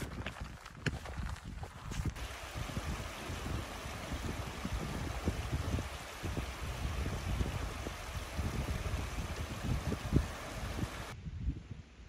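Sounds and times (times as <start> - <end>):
wind buffeting microphone: 0.0 - 12.0
stream rushing over rocks: 2.2 - 11.2.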